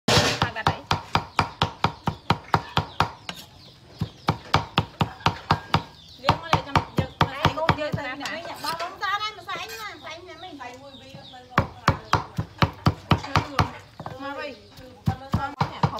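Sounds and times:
cleaver chopping on wooden board: 0.1s - 8.3s, 11.6s - 14.2s, 14.8s - 15.9s.

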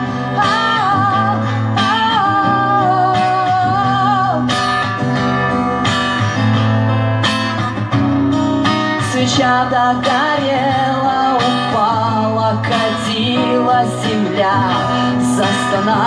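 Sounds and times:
woman singing: 0.0s - 5.0s, 8.9s - 16.0s
strummed acoustic guitar: 0.0s - 16.0s.

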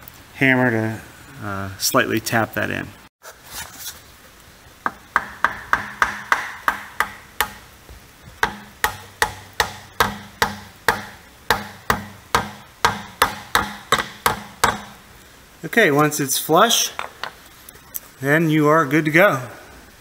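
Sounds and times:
hammer tapping plastic: 4.8s - 7.6s, 8.4s - 15.0s.

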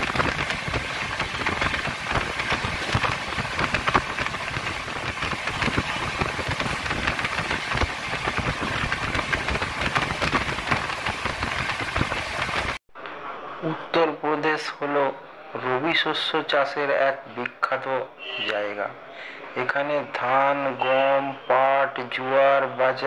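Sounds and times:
train rushing noise: 0.0s - 12.8s.

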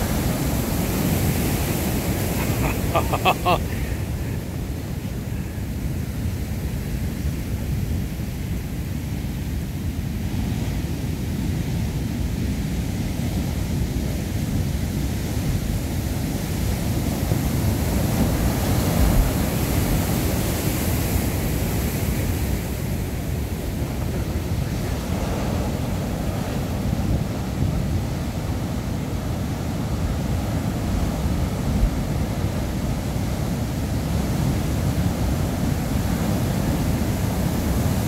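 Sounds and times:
ocean waves breaking: 0.0s - 7.4s, 15.4s - 38.0s.

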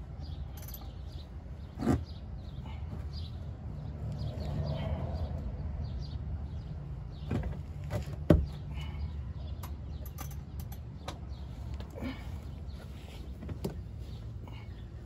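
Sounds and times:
hand tool clinking on metal: 0.5s - 1.0s, 9.6s - 10.9s.

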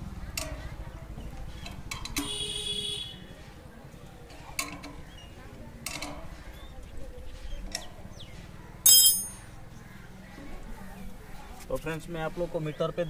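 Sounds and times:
low outdoor rumble: 0.0s - 11.6s
metal clicks of clamp bolts: 4.3s - 5.1s, 5.8s - 6.3s.

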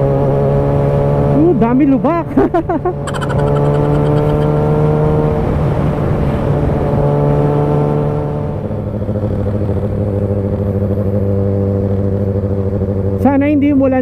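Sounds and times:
motorcycle engine running: 1.1s - 5.7s, 8.2s - 14.0s.

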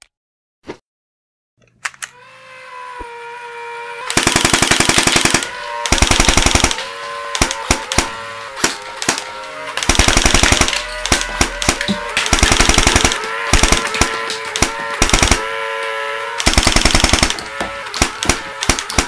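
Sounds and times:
small motor whining: 2.0s - 19.0s
toy gun firing sharp clicks: 4.1s - 15.6s, 16.4s - 19.0s.

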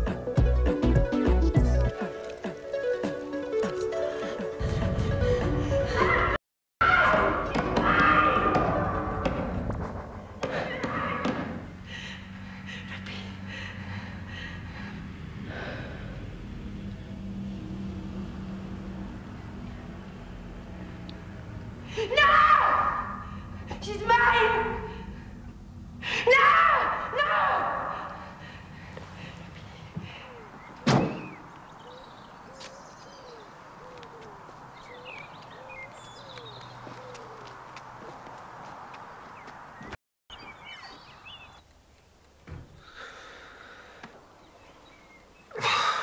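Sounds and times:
birds chirping: 10.2s - 21.8s, 28.0s - 41.7s, 43.6s - 46.0s
person gasping breaths: 11.8s - 16.4s, 27.8s - 30.5s, 42.8s - 44.2s
birds calling: 28.0s - 41.7s, 42.8s - 46.0s
door slamming: 30.8s - 31.4s.

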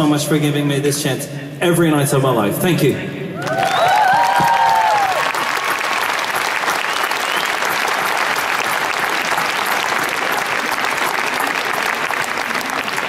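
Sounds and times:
audience applauding: 3.4s - 13.0s
voices cheering: 3.4s - 13.0s.

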